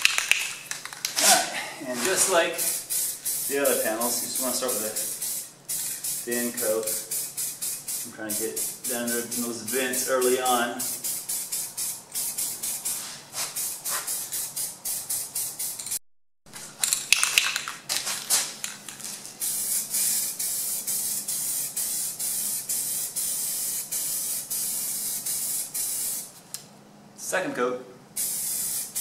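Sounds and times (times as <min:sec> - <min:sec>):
aerosol can spraying: 0:02.0 - 0:10.1, 0:10.8 - 0:16.0, 0:19.4 - 0:26.3, 0:28.2 - 0:29.0.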